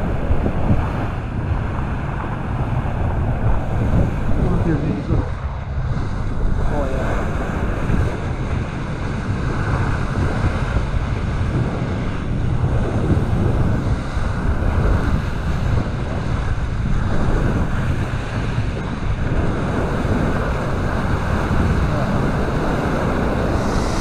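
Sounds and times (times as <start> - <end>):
sea water rushing past boat: 0.0 - 24.0
wind rumble on microphone: 0.0 - 24.0.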